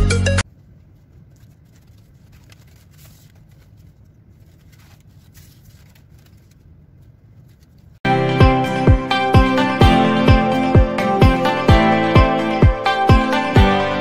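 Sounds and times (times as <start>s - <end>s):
paper rustling: 0.6s - 8.0s.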